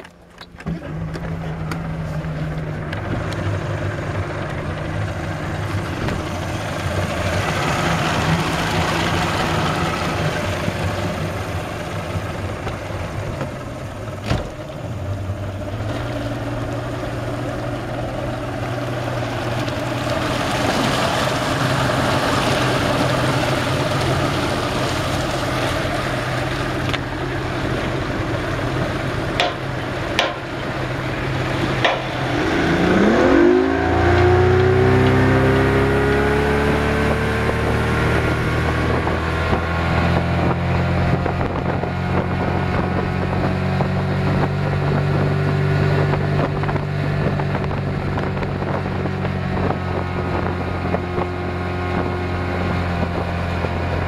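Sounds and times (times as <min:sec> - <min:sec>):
outboard motor running: 0:00.0 - 0:54.0
water rushing: 0:00.0 - 0:54.0
wind: 0:00.0 - 0:54.0
sharp knock: 0:29.4 - 0:30.5, 0:31.8 - 0:32.2.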